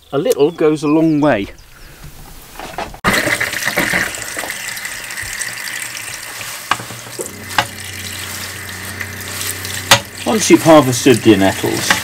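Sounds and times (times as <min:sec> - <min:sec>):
tap water running into colander: 0:03.0 - 0:12.0
metal tongs knocking on colander: 0:09.9 - 0:10.2.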